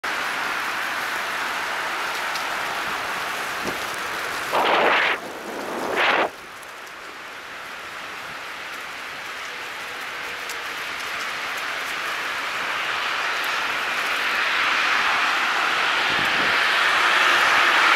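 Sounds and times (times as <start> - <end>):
bicycle tyres rolling over leaves: 0.0 - 17.9
wind on microphone: 3.6 - 6.4, 16.0 - 16.7.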